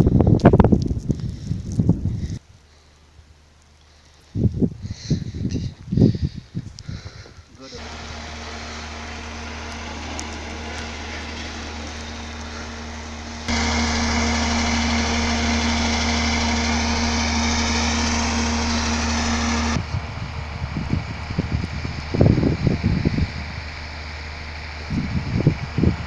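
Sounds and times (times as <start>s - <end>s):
steady motor hum: 6.0s - 26.0s.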